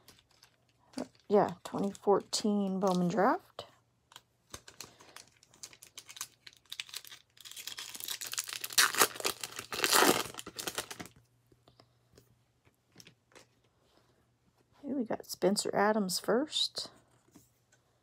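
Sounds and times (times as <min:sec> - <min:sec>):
foil wrapper crinkling: 0:00.0 - 0:03.1, 0:04.5 - 0:11.2
foil wrapper tearing: 0:04.7 - 0:11.1.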